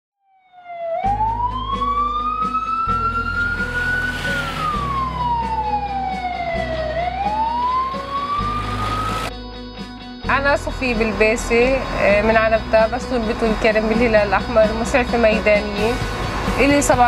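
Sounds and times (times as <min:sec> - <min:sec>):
ambulance siren wailing: 0:00.3 - 0:09.3
background music with beat and bass: 0:01.1 - 0:10.8, 0:14.4 - 0:17.0.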